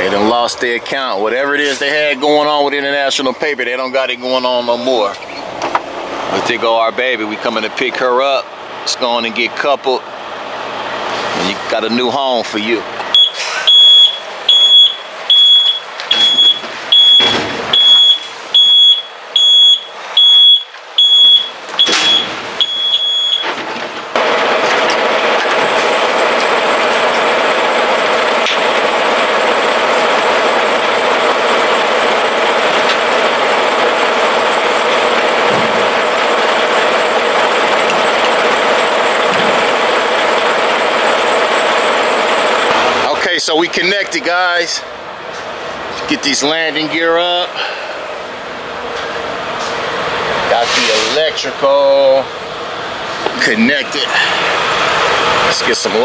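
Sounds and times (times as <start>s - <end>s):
truck engine droning: 0.0s - 56.0s
truck reversing alarm beeping: 13.1s - 25.8s.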